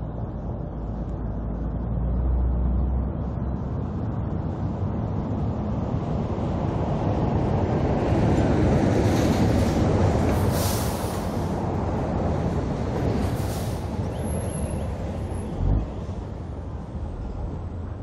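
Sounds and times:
short air hisses: 0:10.4 - 0:11.5, 0:13.4 - 0:13.9.

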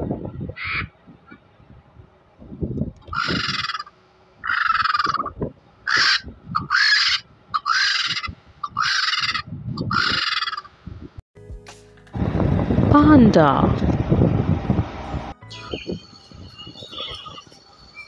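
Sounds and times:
vulture harsh hissing squawks: 0:03.1 - 0:10.7.

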